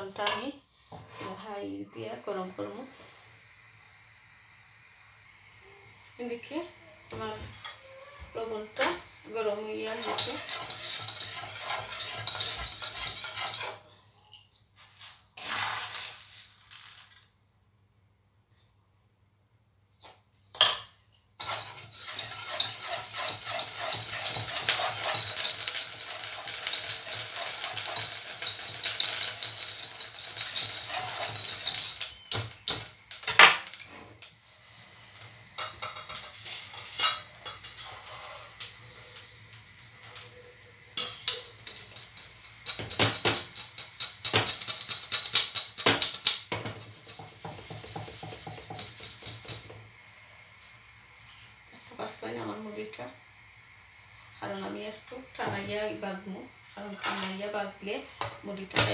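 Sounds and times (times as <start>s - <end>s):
wooden spoon scraping salt in pan: 8.3s - 13.9s, 14.8s - 17.0s, 21.4s - 39.4s, 41.0s - 49.8s.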